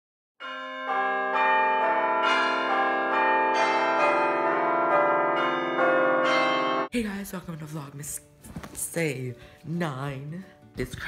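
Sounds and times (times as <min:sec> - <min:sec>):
bells ringing: 0:00.4 - 0:06.9.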